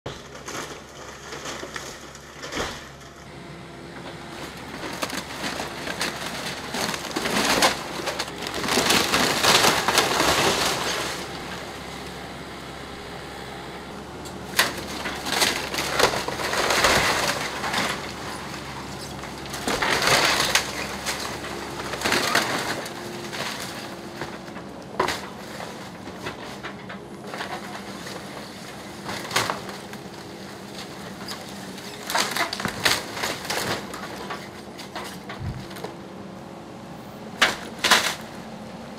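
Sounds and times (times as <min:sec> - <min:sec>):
excavator diesel engine hum: 0:00.1 - 0:38.9
wood splintering: 0:04.2 - 0:12.1, 0:14.2 - 0:36.0
debris crashing down: 0:04.7 - 0:11.7, 0:14.5 - 0:35.9.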